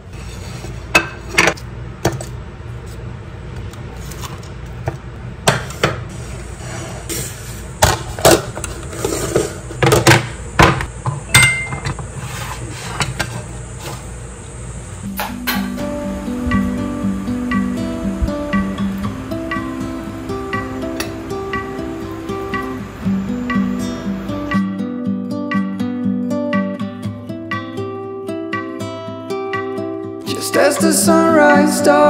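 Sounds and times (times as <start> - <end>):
plates knocking and clinking: 7.8 - 12.0.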